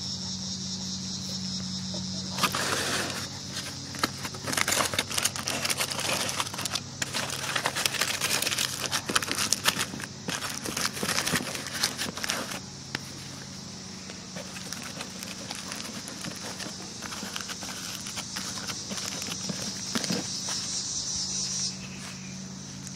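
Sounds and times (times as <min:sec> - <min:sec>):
crickets chirring: 0:00.0 - 0:22.9
aluminium foil crinkling: 0:02.4 - 0:13.5, 0:14.3 - 0:20.7.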